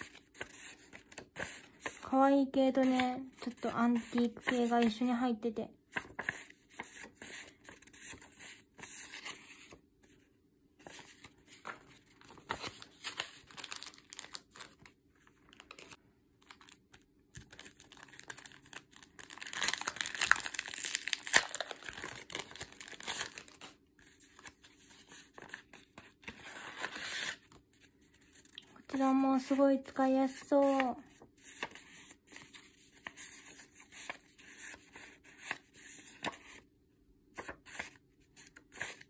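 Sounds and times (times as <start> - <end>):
paper and plastic packets rustling: 10.8 - 24.6.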